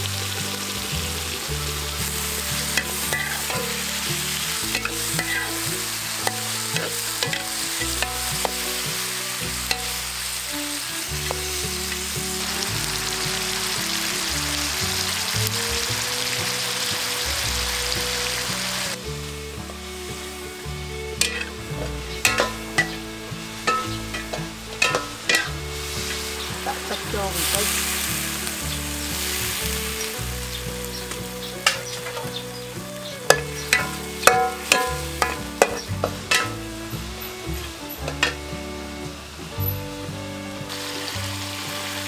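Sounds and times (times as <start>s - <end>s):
food sizzling in a wok: 0.0s - 42.0s
spatula scraping a wok: 1.4s - 15.3s, 21.2s - 39.8s.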